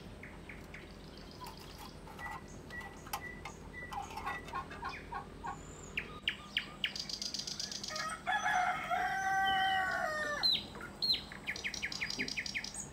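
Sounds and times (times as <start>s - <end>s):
small birds chirping: 0.0s - 12.9s
rooster crowing: 7.4s - 10.6s.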